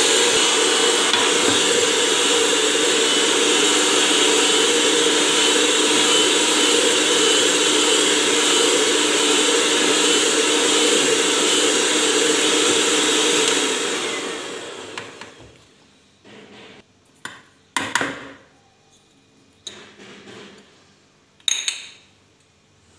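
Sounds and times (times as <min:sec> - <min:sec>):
electric hand mixer whisking: 0:00.0 - 0:15.4.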